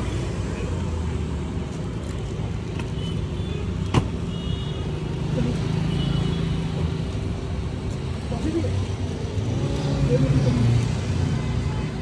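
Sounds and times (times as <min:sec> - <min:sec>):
car traffic passing: 0:00.0 - 0:12.0.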